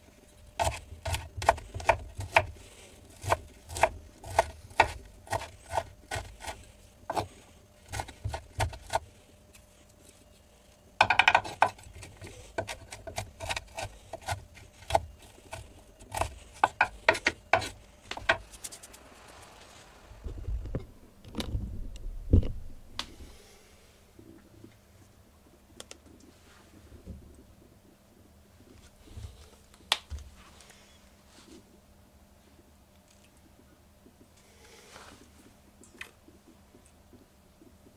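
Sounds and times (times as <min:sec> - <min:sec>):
knife chopping on wooden board: 0:00.6 - 0:02.5, 0:03.2 - 0:07.3, 0:07.9 - 0:09.0, 0:12.6 - 0:18.4.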